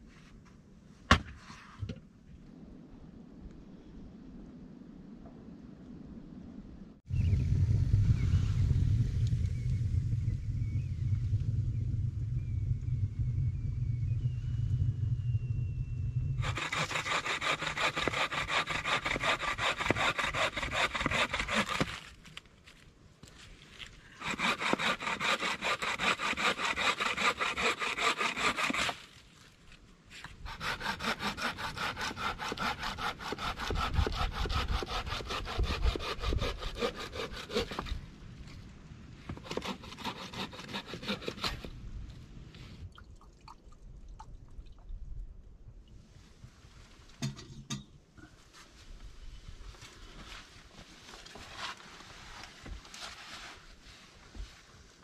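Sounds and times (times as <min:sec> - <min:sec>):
bucksaw cutting branch: 0:16.4 - 0:22.2.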